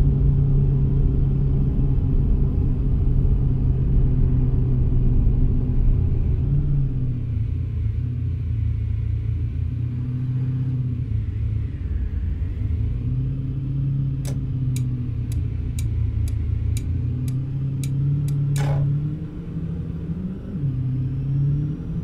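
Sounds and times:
car engine and road rumble: 0.0 - 22.0
turn signal ticking: 14.3 - 19.0.

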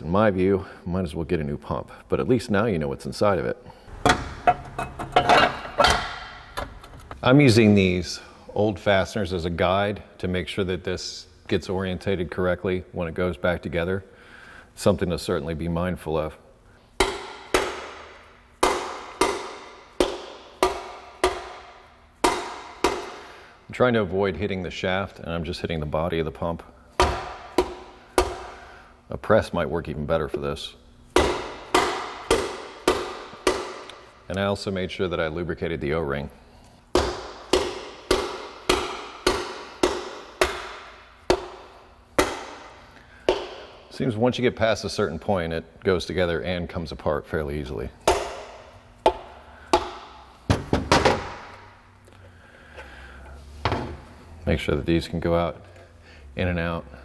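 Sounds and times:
mallet knocking on metal pump: 3.9 - 6.4, 22.2 - 23.1, 31.2 - 33.9, 37.0 - 41.6.

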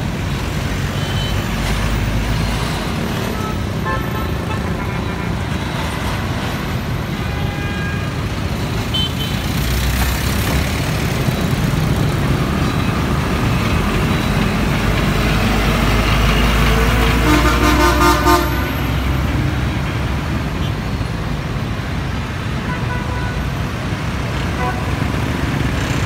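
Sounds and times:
heavy truck engine rumbling: 0.0 - 26.0
motorbike and car traffic: 0.0 - 26.0
vehicle horn honking: 3.3 - 5.2, 17.2 - 18.7.

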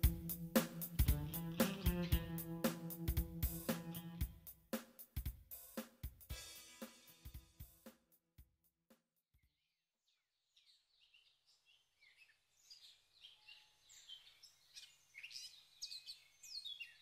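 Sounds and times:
small birds chirping: 9.4 - 17.0.

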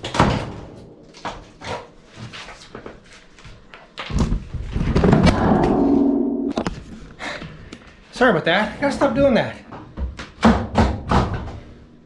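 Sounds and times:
loud thud: 5.0 - 6.9
drawn-out steady-pitched tone: 5.4 - 6.7.

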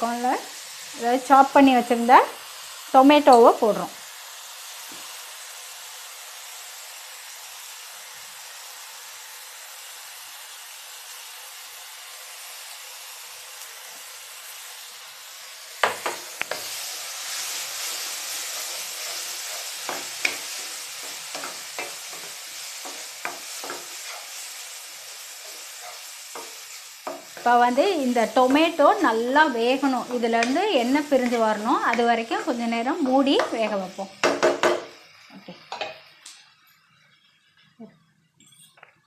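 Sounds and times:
masala sizzling in a pan: 0.0 - 38.3
spatula knocking and scraping pan: 15.8 - 16.8, 17.9 - 24.5, 25.4 - 35.0.

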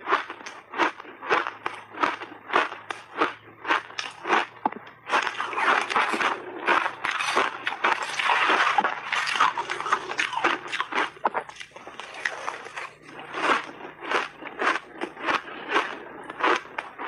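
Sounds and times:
ice being chewed with crunches: 0.0 - 17.0.

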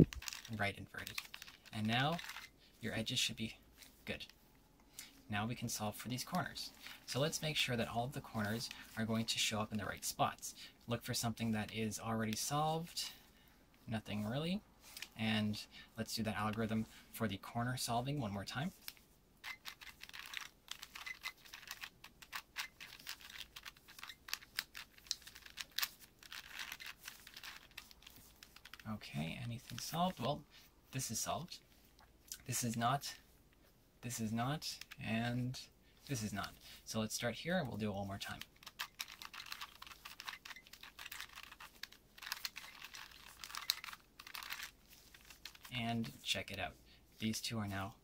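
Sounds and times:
puzzle cube clicking: 0.0 - 2.5, 19.4 - 28.8, 38.3 - 45.7.

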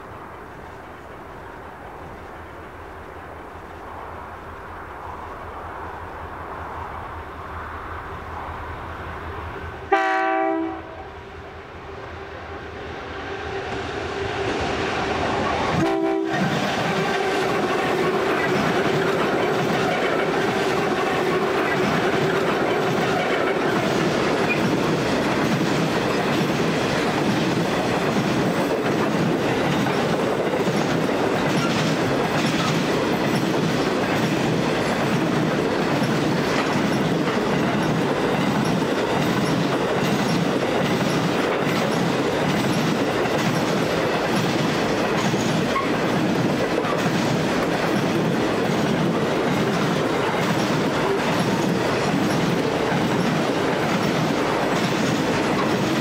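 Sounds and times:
train wagons rolling past: 0.0 - 56.0
wheels clicking over rail joints: 16.3 - 56.0.

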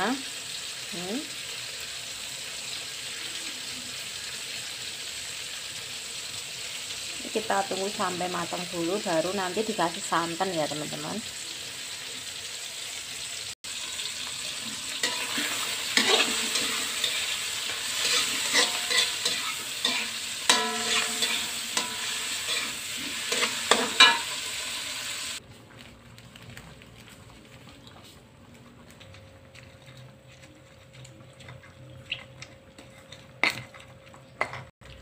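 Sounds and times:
food sizzling in hot oil: 0.0 - 25.4
metal spatula scraping wok: 14.4 - 25.4.

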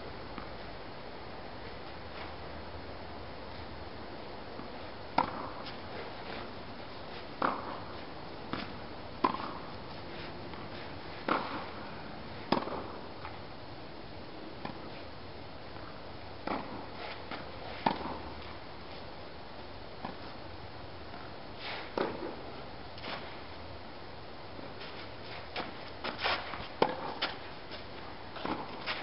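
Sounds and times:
tennis ball hit with rackets: 5.2 - 5.8, 7.4 - 9.8, 10.5 - 11.8, 12.5 - 13.0, 16.4 - 18.4, 21.8 - 22.4, 25.5 - 27.5.

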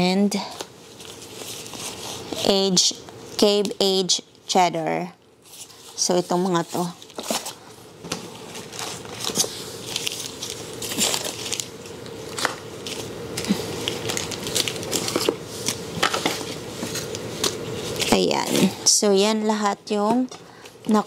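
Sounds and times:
plastic packaging crinkling: 0.8 - 2.5, 5.4 - 7.8, 8.4 - 18.6.

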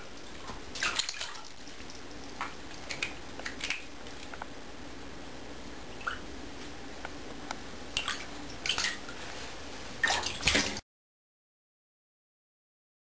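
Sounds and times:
cat paws splashing in water: 0.0 - 4.4, 7.9 - 10.8.

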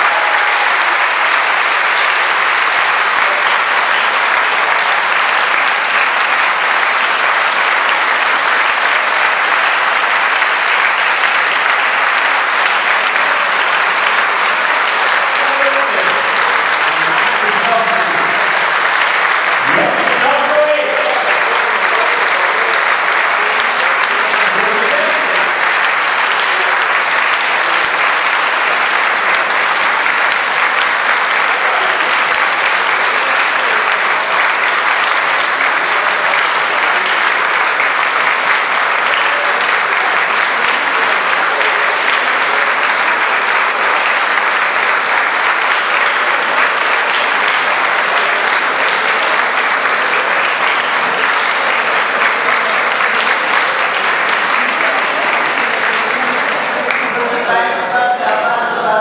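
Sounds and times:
audience applauding: 0.0 - 59.0.

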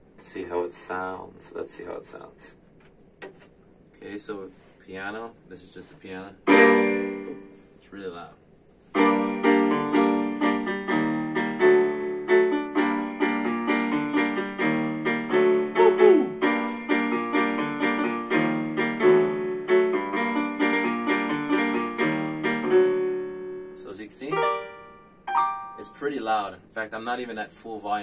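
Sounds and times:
electronic keyboard piano chords: 6.5 - 7.6, 9.0 - 26.3.

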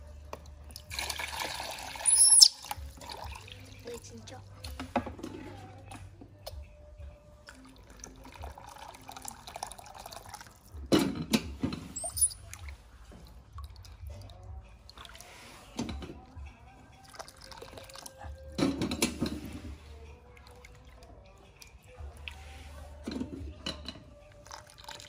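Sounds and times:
water dripping and splashing: 0.3 - 4.8, 12.2 - 15.4, 24.3 - 25.0.

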